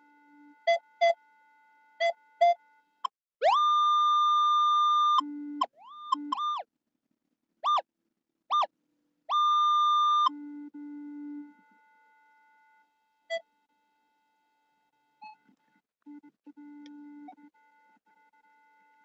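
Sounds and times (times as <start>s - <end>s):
metal detector beeps and tones: 6.0s - 6.6s, 9.3s - 10.3s.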